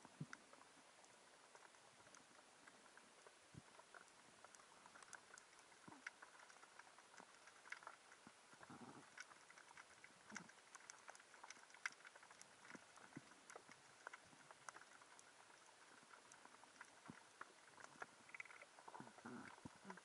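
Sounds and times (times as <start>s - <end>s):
underwater clicks and pops: 16.2s - 20.0s.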